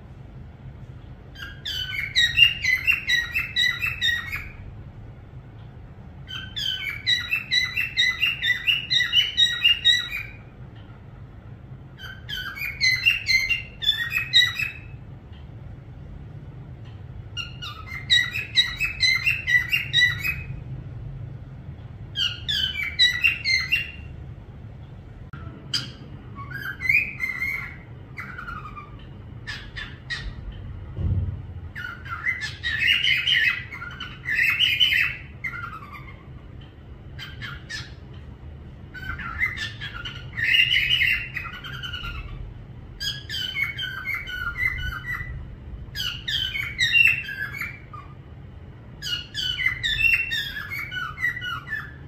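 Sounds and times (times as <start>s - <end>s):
parrot whistling and chattering: 1.3s - 4.6s, 6.2s - 10.5s, 12.0s - 15.0s, 17.3s - 20.6s, 22.1s - 24.1s, 25.4s - 30.5s, 31.7s - 36.5s, 37.1s - 38.1s, 38.9s - 42.4s, 43.0s - 48.2s, 49.0s - 52.0s.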